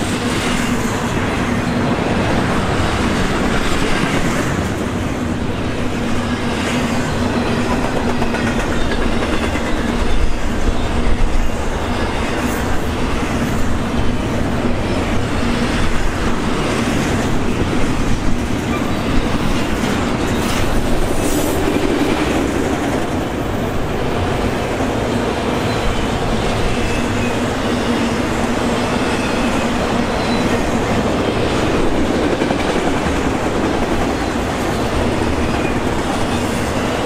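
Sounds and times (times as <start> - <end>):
freight train rumble: 0.0 - 37.0
train wheels clattering on rails: 0.0 - 37.0.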